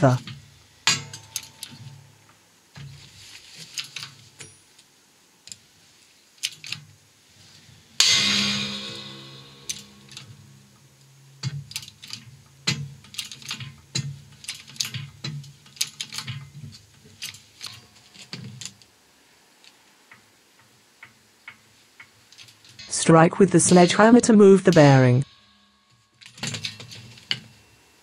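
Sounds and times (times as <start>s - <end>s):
metallic clicks and knocks: 0.0s - 3.0s, 8.0s - 18.9s, 19.6s - 22.9s, 25.9s - 27.6s
metal bang ringing: 8.0s - 10.8s.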